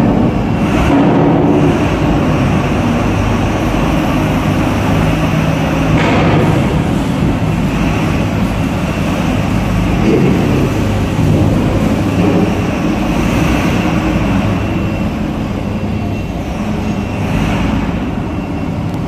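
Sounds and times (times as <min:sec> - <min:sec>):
heavy diesel engines droning: 0:00.0 - 0:19.0.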